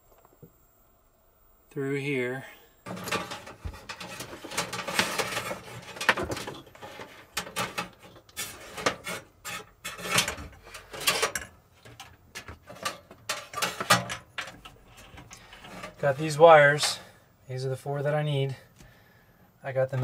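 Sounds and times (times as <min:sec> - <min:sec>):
wires scraping against wood and metal: 0:02.8 - 0:17.2.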